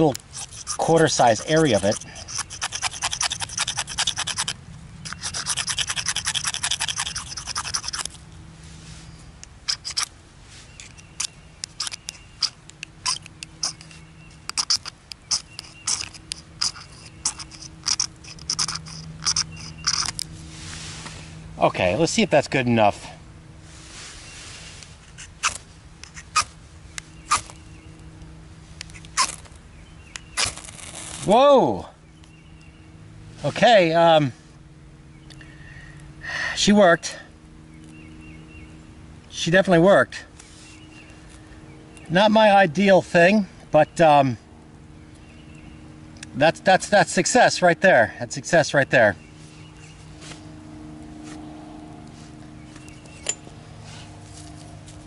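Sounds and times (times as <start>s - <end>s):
knife blade scraping fire-starter bar: 0.0s - 8.2s, 9.6s - 10.1s, 10.7s - 20.2s, 25.0s - 26.5s, 27.2s - 27.6s, 28.8s - 31.3s.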